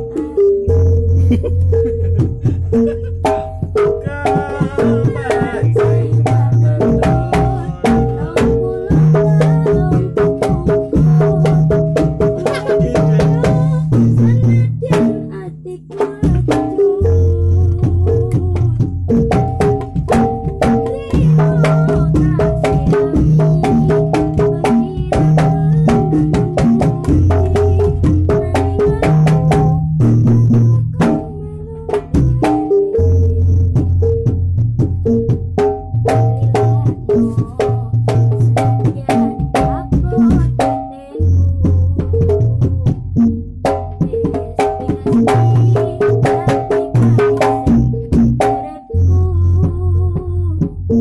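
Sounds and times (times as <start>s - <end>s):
hand drum strokes: 33.6s - 50.8s.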